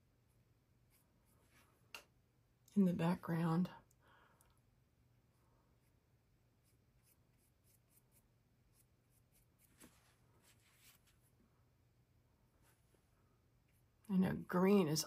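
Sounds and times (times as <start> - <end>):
paintbrush strokes on panel: 5.8 - 11.4.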